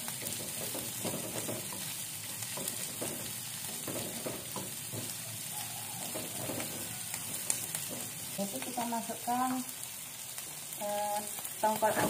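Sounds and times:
spatula scraping and tapping wok: 0.0s - 8.9s
food sizzling in oil: 0.0s - 12.0s.

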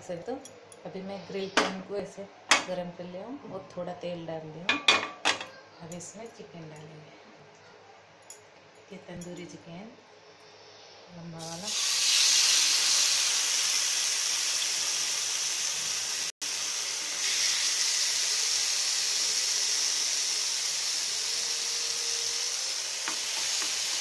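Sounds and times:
chicken sizzling on a grill pan: 11.4s - 24.0s.

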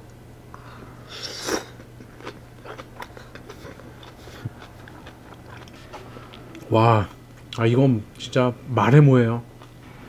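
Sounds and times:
man chewing food: 0.6s - 7.6s, 9.6s - 9.8s.

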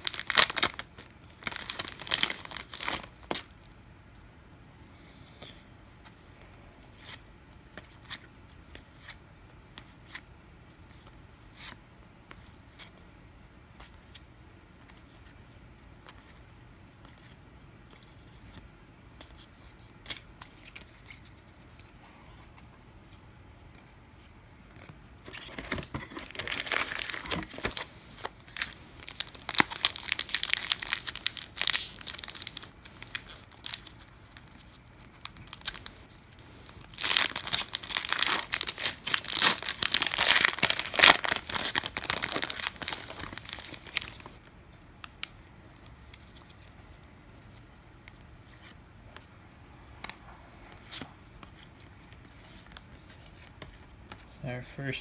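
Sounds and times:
card pack wrapper tearing: 0.0s - 3.4s, 28.5s - 33.9s, 36.8s - 44.3s.

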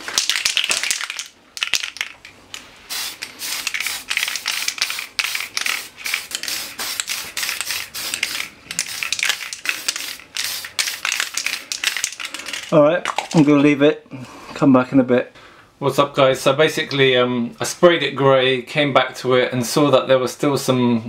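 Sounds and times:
aerosol can spray bursts: 2.9s - 12.2s.

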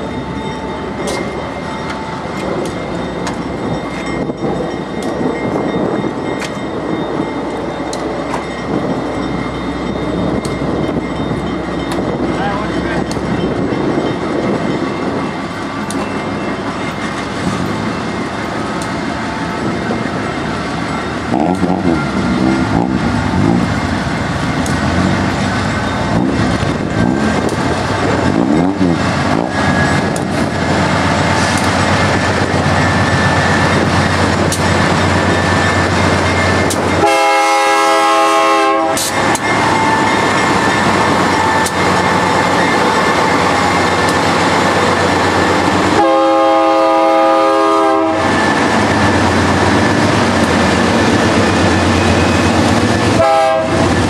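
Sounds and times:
diesel locomotive engine drone: 0.0s - 54.0s
train wheels rolling on rails: 0.0s - 54.0s
train air horn blasts: 37.0s - 40.0s, 45.9s - 48.4s, 53.1s - 53.9s.

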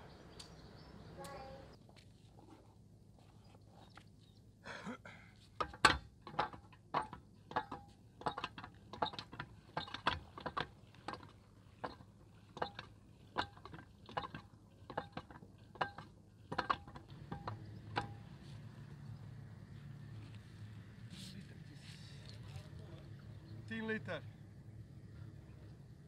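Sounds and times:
hand water pump squeaky clanking: 5.6s - 19.4s.

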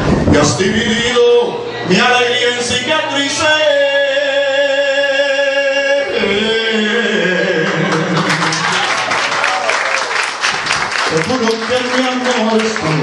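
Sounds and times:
man singing into a microphone: 0.1s - 8.6s
audience applause: 7.6s - 13.0s.

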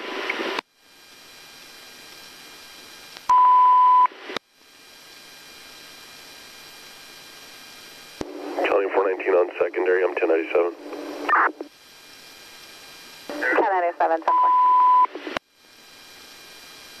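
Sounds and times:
radio hiss: 0.0s - 17.0s
high radio beep: 3.3s - 4.1s, 8.6s - 11.6s, 13.3s - 15.4s
burst of radio static: 7.1s - 17.0s.

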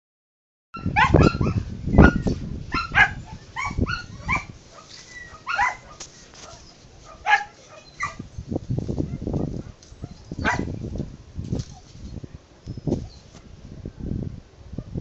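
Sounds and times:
sharp barking animal calls: 0.8s - 8.3s, 9.1s - 10.7s.

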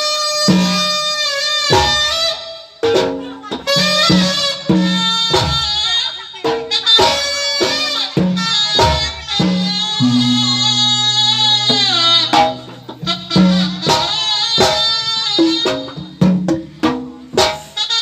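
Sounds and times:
hand drums beating: 1.7s - 17.8s
reedy wind instrument melody: 6.7s - 16.2s.

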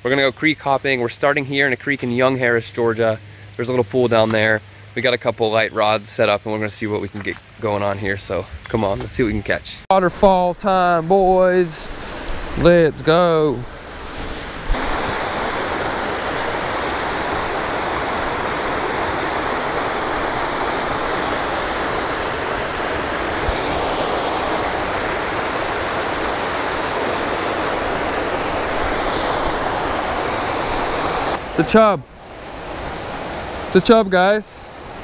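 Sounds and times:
waterfall rushing into pool: 9.9s - 35.0s.

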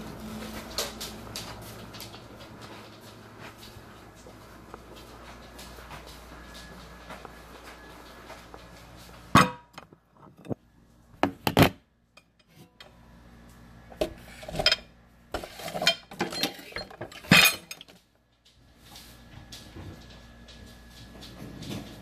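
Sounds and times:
dishes clinking and clattering: 14.3s - 18.0s.

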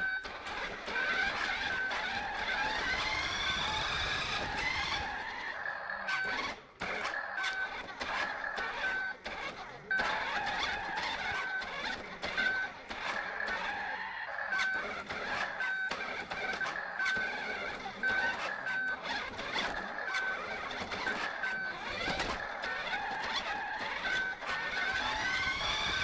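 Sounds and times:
toy car motor whining: 0.0s - 26.0s
toy car clicking on floor: 6.1s - 26.0s.

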